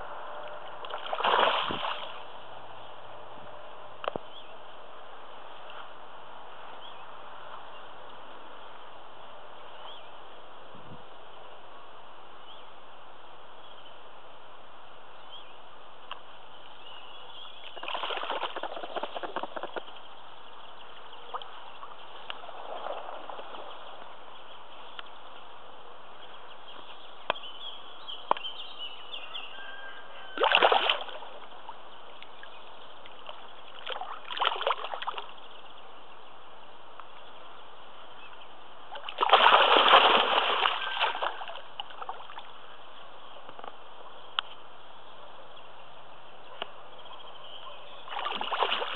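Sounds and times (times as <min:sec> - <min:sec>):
fish splashing in water: 0:00.8 - 0:02.3, 0:17.7 - 0:19.9, 0:30.4 - 0:31.4, 0:33.2 - 0:35.3, 0:38.9 - 0:42.5, 0:48.0 - 0:48.9.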